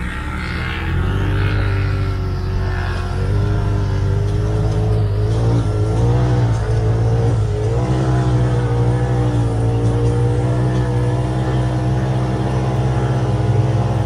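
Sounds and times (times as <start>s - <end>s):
engine running under throttle: 0.0s - 14.0s.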